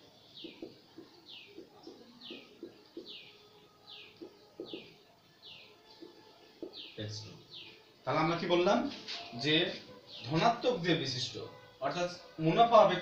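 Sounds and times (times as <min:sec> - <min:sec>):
bird chirping: 0:00.0 - 0:07.9.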